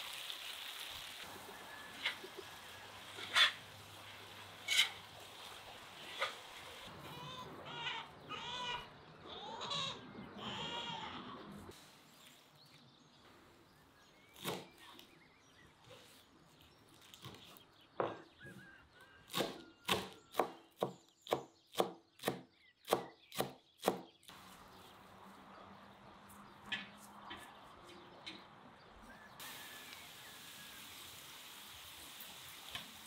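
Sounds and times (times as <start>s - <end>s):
potatoes sizzling in a pan: 0.0s - 6.9s, 29.4s - 33.0s.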